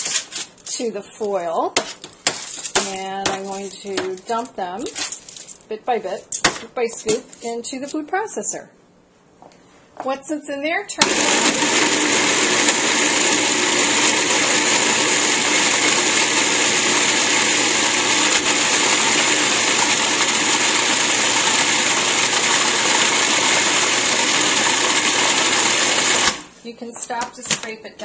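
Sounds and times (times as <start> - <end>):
food processor running: 11.0 - 26.5.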